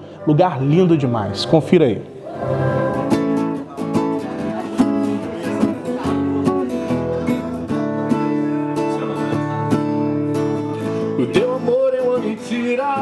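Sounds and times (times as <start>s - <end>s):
acoustic guitar strumming chords: 2.3s - 13.0s.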